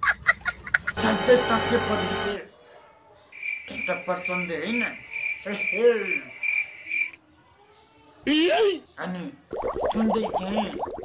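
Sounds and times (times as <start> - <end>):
cricket chirping: 3.3 - 7.2.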